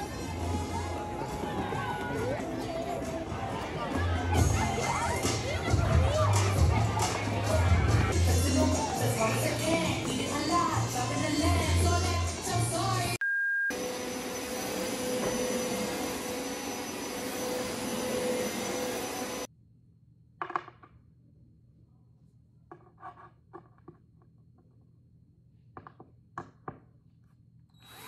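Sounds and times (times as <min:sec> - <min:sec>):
pop music: 0:00.0 - 0:13.2
short beep: 0:13.2 - 0:13.9
carpet cleaner motor whine: 0:13.8 - 0:19.5.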